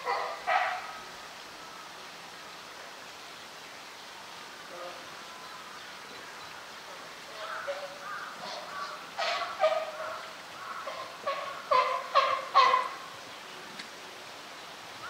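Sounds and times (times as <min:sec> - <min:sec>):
bird calling: 0:07.3 - 0:13.2.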